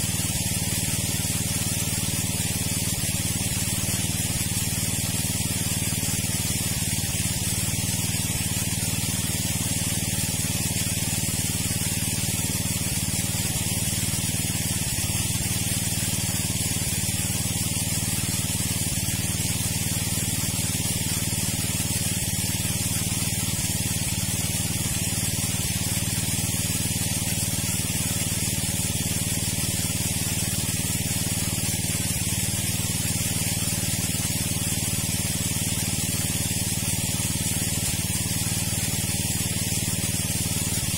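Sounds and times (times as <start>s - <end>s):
water pump engine droning: 0.0s - 40.9s.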